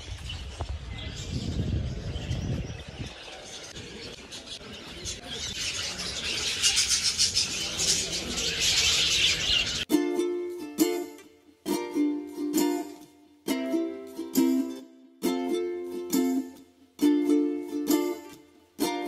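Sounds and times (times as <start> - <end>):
small birds chirping: 0.0 - 9.9
plucked ukulele music: 9.8 - 19.0.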